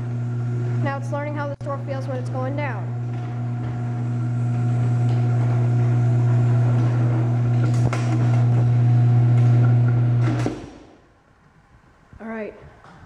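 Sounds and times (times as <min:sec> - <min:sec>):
garage door opener motor humming: 0:00.0 - 0:10.8.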